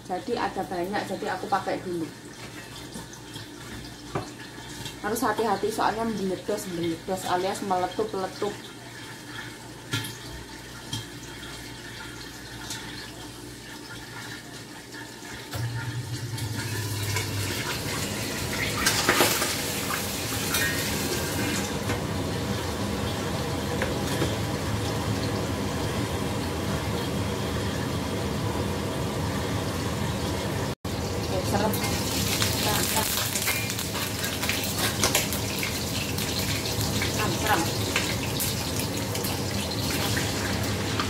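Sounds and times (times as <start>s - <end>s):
hot fat sizzling and spattering: 31.4s - 41.0s.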